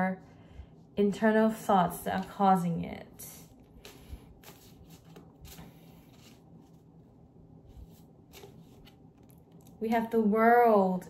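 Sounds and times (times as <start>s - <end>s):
cards being shuffled: 3.5s - 6.8s, 7.8s - 9.8s.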